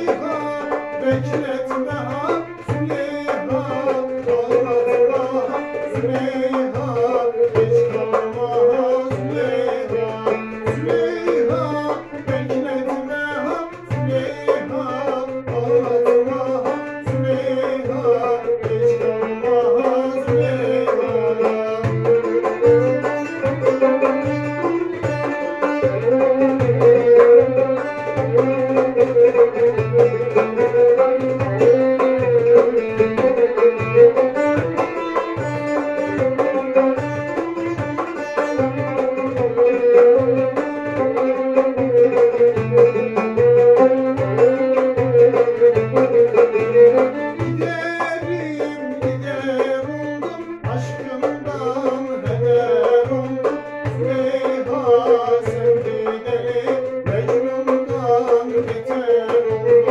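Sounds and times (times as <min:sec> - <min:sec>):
banjo: 0:00.0 - 0:59.9
hand drum rhythm: 0:00.0 - 0:59.9
violin: 0:00.0 - 0:59.9.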